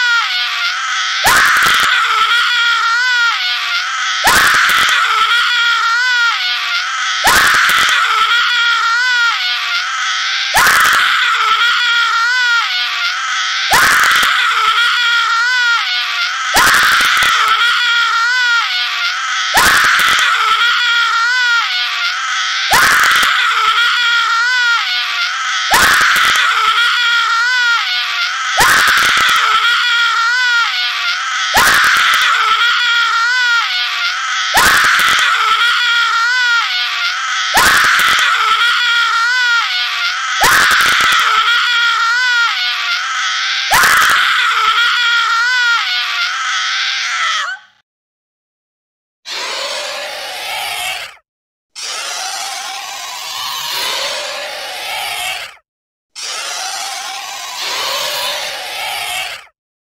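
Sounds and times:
man screaming: 0.0 - 47.7.

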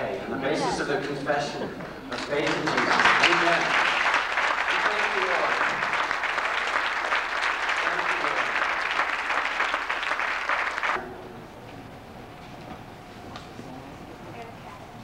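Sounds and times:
crowd applauding: 1.8 - 11.0.

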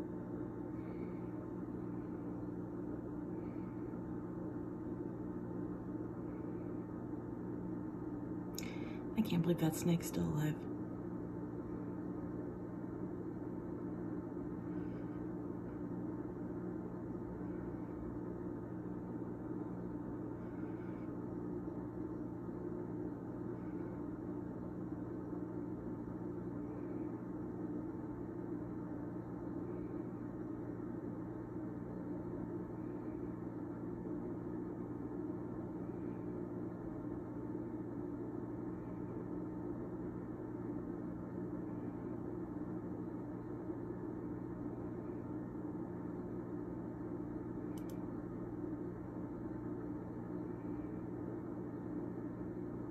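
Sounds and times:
low mechanical hum: 0.0 - 52.9.

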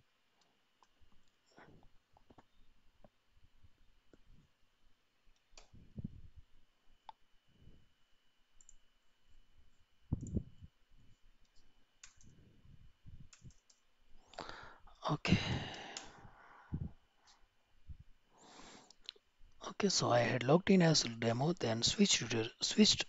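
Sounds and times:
soft low thumps: 10.1 - 10.7, 16.7 - 17.0
keyboard and mouse clicks: 13.3 - 13.8
breath at microphone: 14.4 - 17.0.

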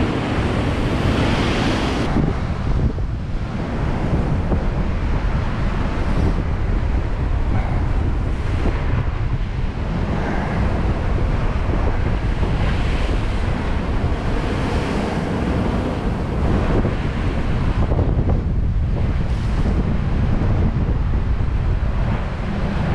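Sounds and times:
sea waves breaking: 0.0 - 22.9
strong wind on microphone: 0.0 - 22.9.

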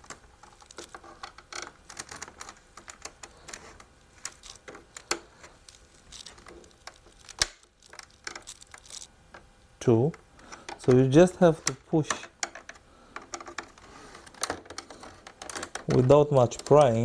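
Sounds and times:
plastic casing clicking and snapping: 0.0 - 9.5, 11.7 - 17.0.

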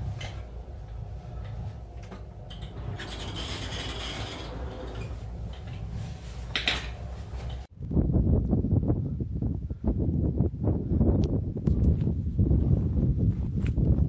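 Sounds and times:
wind buffeting microphone: 0.0 - 14.0
sliding door rattling on track: 2.0 - 5.9.

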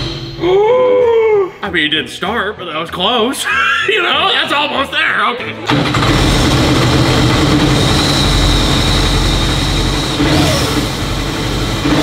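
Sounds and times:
boat engine running loudly: 5.7 - 12.0
high supercharger whine: 5.7 - 12.0.

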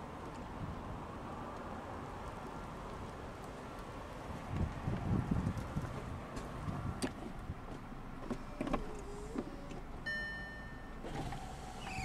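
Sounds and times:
steady beep: 10.1 - 11.0.

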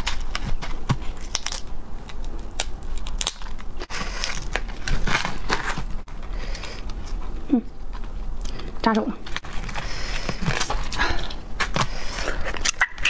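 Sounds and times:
crab shells cracking and crunching: 0.0 - 5.5.

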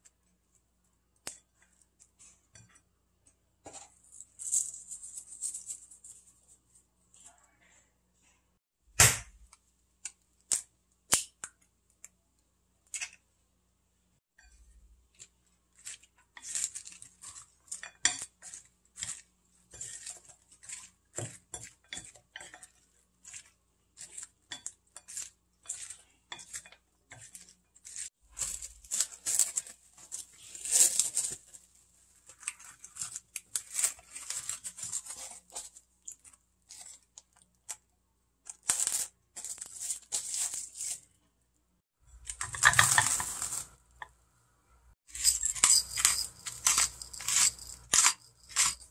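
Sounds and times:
utensil scraping glass bowl: 15.7 - 29.4, 45.1 - 48.9.

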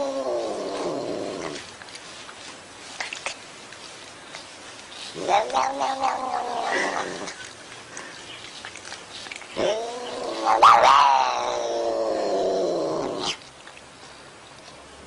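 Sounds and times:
cat yowling: 5.2 - 7.1, 9.6 - 12.5.

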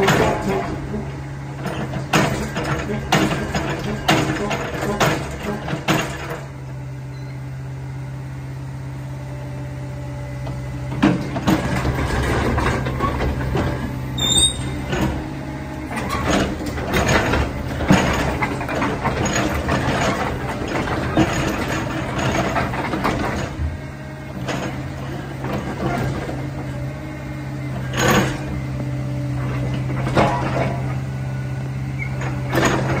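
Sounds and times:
metal clanks and knocks: 0.0 - 0.8, 1.6 - 6.6, 10.9 - 26.6, 29.4 - 31.0, 32.2 - 33.0
hydraulics working: 0.0 - 7.4, 10.3 - 33.0
excavator diesel engine running: 0.0 - 33.0.

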